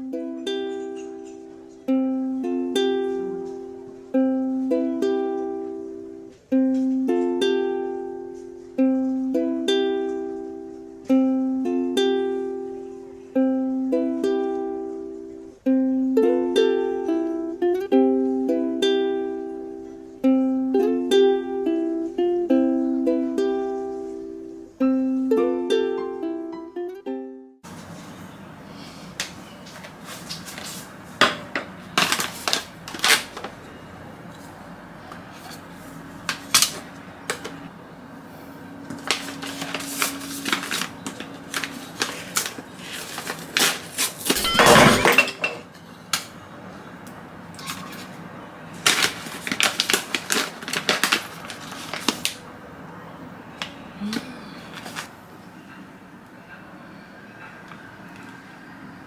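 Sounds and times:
foil bag crinkling: 0:32.0 - 0:33.6, 0:39.0 - 0:44.5, 0:48.7 - 0:52.4.

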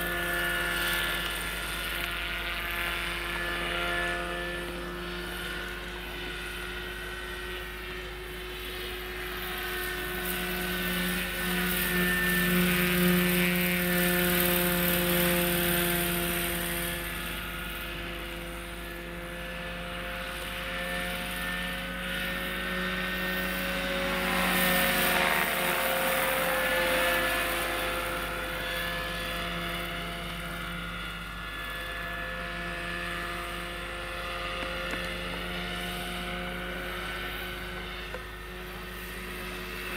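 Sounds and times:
model helicopter humming whine: 0:00.0 - 0:39.9.

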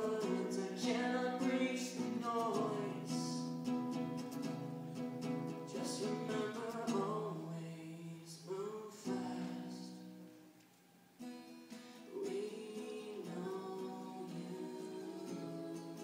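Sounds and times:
person singing: 0:00.0 - 0:03.6, 0:05.6 - 0:10.1, 0:12.0 - 0:16.0
strummed acoustic guitar: 0:00.0 - 0:10.5, 0:11.2 - 0:16.0.

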